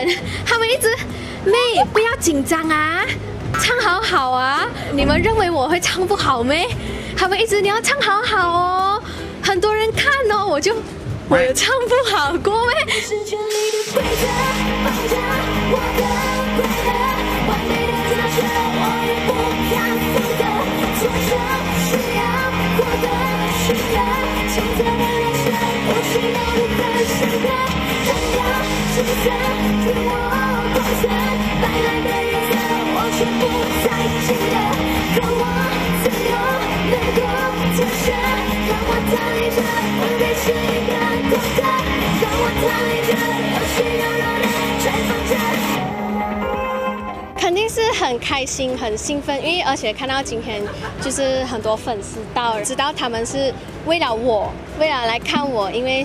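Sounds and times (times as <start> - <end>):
low bass line: 4.9 - 6.3
band music: 4.9 - 6.4, 13.5 - 47.6
woman singing into a microphone: 7.2 - 47.4.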